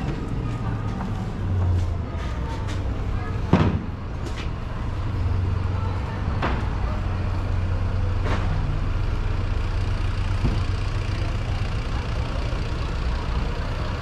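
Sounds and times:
vehicle engine hum: 0:00.0 - 0:14.0.

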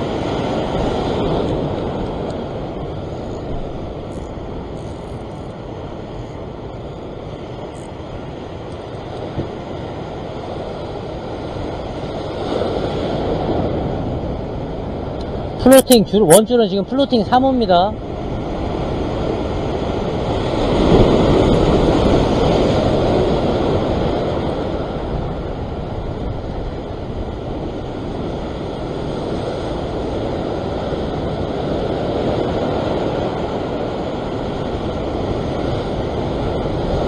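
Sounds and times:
ocean surf against rocks: 0:00.0 - 0:37.0
wind buffeting microphone: 0:00.0 - 0:37.0.

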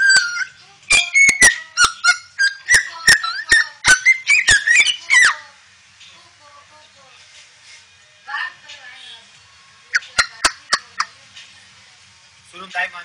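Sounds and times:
cockatoo whistle-like calls: 0:00.0 - 0:05.4.

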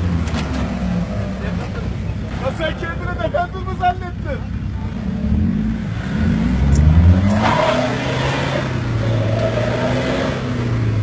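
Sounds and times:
off-road engine revving hard: 0:04.9 - 0:11.0.

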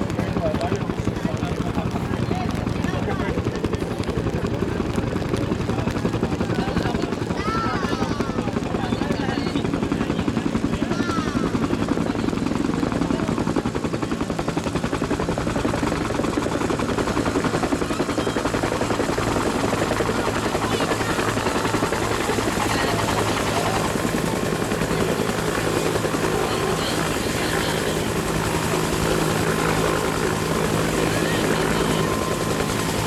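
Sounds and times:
helicopter engine: 0:00.0 - 0:33.0
helicopter rotor thudding: 0:11.4 - 0:33.0.

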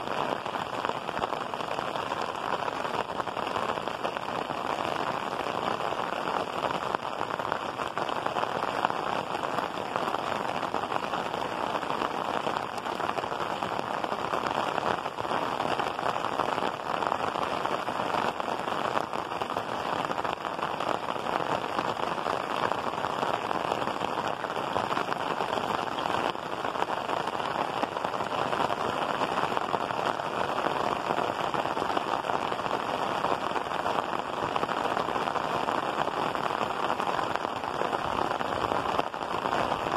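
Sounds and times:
heavy rain on tiled roofs: 0:00.0 - 0:39.9.

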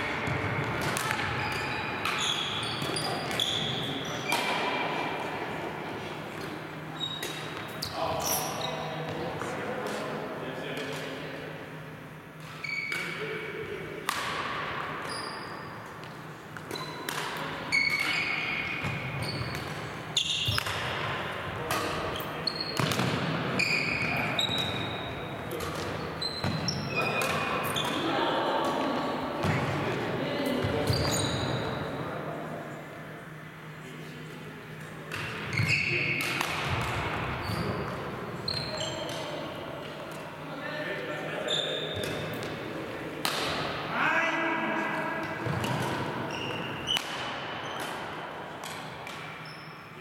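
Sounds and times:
sports shoes squeaking: 0:00.0 - 0:04.5, 0:06.9 - 0:09.3, 0:12.4 - 0:13.2, 0:15.0 - 0:20.8, 0:21.7 - 0:23.0, 0:23.6 - 0:28.1, 0:30.4 - 0:31.9, 0:35.5 - 0:36.2, 0:37.4 - 0:39.4, 0:41.3 - 0:42.5, 0:45.7 - 0:47.9, 0:49.2 - 0:50.0
rackets hitting shuttlecock: 0:00.1 - 0:05.0, 0:12.4 - 0:13.4, 0:14.0 - 0:15.1, 0:15.8 - 0:29.8, 0:34.9 - 0:38.2, 0:42.0 - 0:43.8, 0:45.2 - 0:49.4
shuttlecock hits: 0:43.2 - 0:43.7.

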